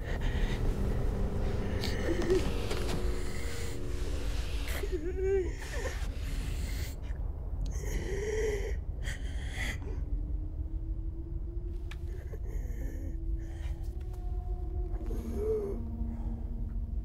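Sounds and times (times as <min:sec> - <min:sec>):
woman breathing frightened: 0:00.0 - 0:07.1
low steady rumble: 0:00.0 - 0:17.0.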